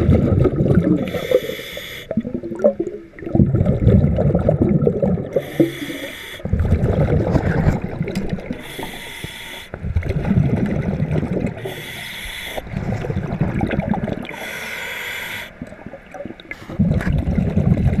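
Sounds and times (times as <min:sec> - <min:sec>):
exhaled air bubbling: 0:00.0 - 0:18.0
scuba regulator inhalation hiss: 0:01.0 - 0:02.1, 0:05.4 - 0:06.5, 0:08.6 - 0:09.8, 0:11.6 - 0:12.7, 0:14.3 - 0:15.6.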